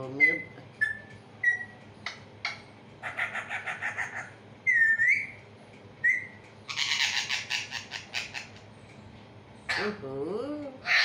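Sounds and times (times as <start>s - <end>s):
parakeet squawking and whistling: 0.2s - 5.4s, 6.0s - 8.6s.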